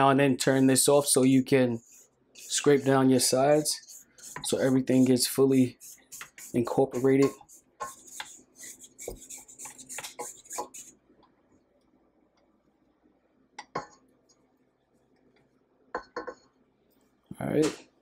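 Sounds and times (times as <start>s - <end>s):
spatula scraping metal bowl: 1.7s - 10.9s.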